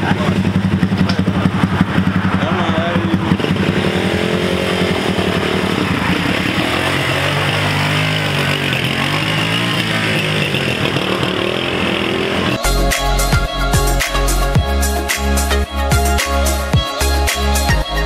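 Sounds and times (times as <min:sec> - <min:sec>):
motorcycle revving pulling away: 0:00.0 - 0:12.6
small motorcycle engines running: 0:00.0 - 0:12.6.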